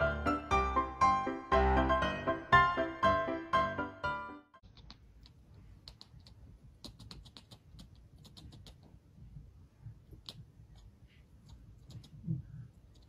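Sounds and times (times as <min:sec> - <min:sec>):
kitten mouth clicks: 0:04.6 - 0:09.0, 0:10.1 - 0:13.0.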